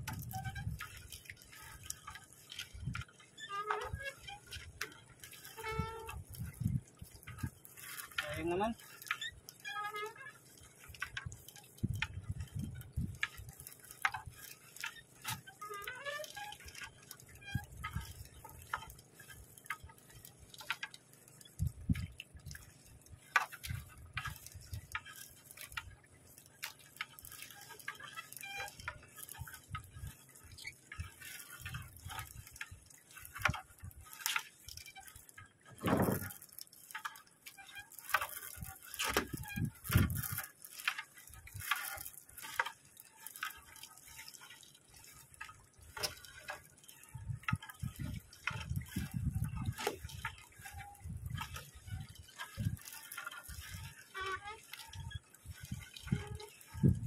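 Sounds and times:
net rustling against hull: 0.0 - 57.0.

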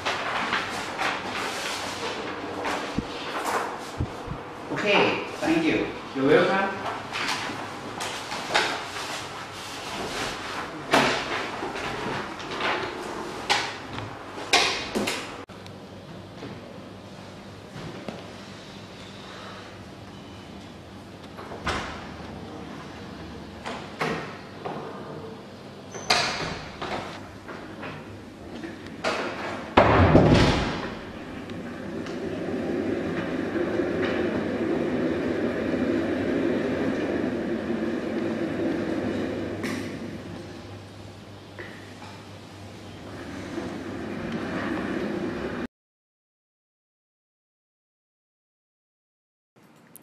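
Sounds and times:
steady low hum: 0.0 - 45.7
door banging shut: 29.0 - 31.1.

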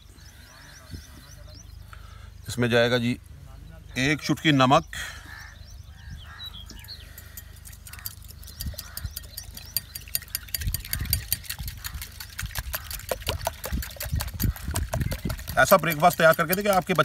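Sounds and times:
whisk clicking against glass bowl: 7.2 - 17.0.

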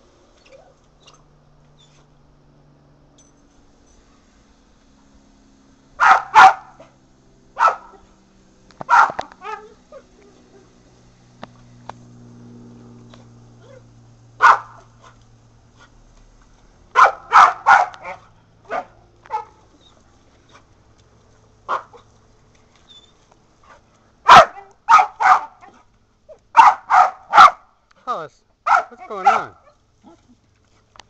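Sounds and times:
dog barking: 6.0 - 6.9, 7.6 - 8.1, 8.9 - 9.8, 14.4 - 14.8, 16.9 - 19.6, 21.7 - 22.0, 24.2 - 25.8, 26.5 - 27.7, 28.6 - 29.8.

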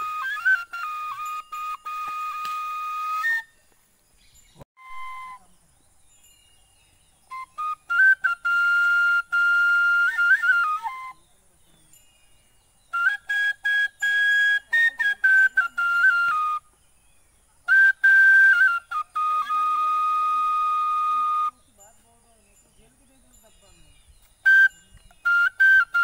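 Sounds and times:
bamboo flute: 0.0 - 3.7, 4.8 - 5.6, 7.2 - 11.9, 12.9 - 16.8, 17.6 - 21.8, 24.2 - 26.0.

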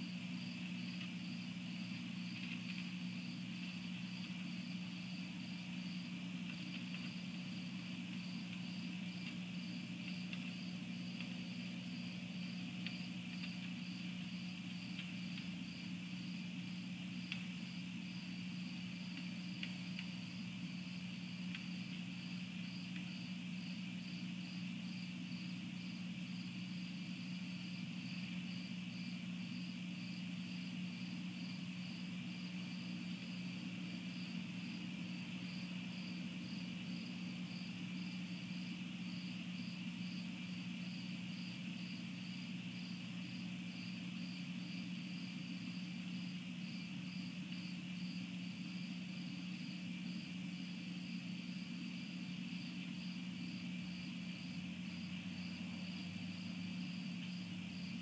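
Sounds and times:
constant low hum: 0.0 - 58.0
crickets chirping: 0.0 - 58.0.

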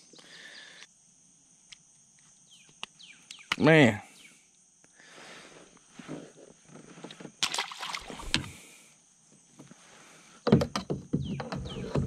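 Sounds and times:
water splashing: 7.4 - 8.5.

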